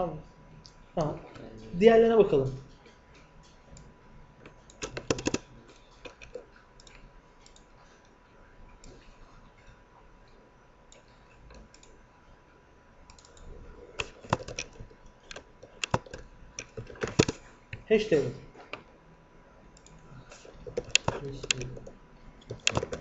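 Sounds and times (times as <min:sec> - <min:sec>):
mouse and keyboard clicks: 0:04.7 - 0:07.7, 0:14.0 - 0:17.4, 0:19.8 - 0:23.0.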